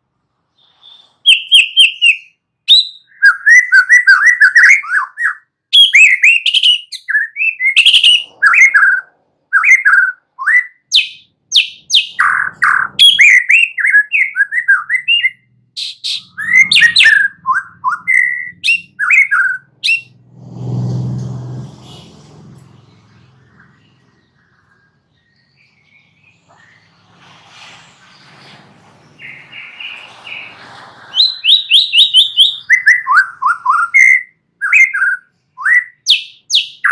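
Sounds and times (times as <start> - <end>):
bird singing whistled song: 0.6 - 20.2, 29.2 - 30.5, 31.1 - 36.9.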